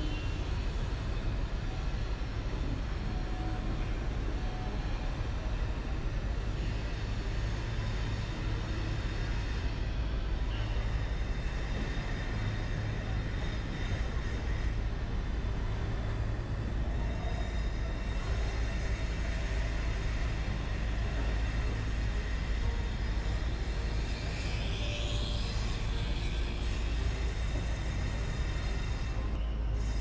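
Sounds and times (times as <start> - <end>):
train wheels rumbling on rails: 0.0 - 30.0.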